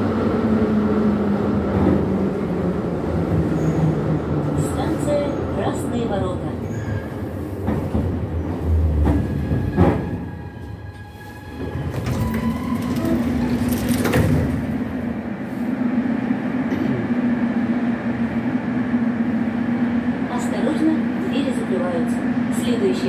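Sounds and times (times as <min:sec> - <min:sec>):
standing train low hum: 0:00.0 - 0:23.0
train wheel clacks and knocks: 0:11.6 - 0:14.8.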